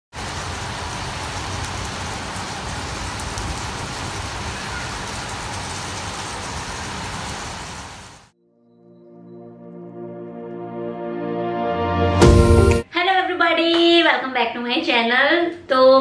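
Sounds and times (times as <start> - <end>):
steady rain falling: 0.1 - 8.3.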